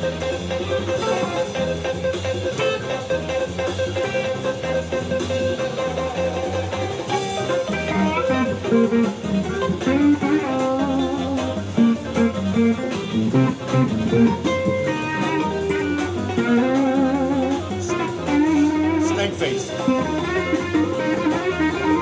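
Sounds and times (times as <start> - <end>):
electric guitar lead lines: 0.0 - 22.0.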